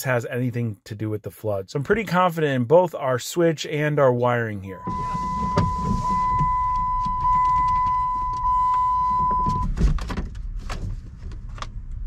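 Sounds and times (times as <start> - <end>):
high-pitched electronic beep: 4.7 - 9.7.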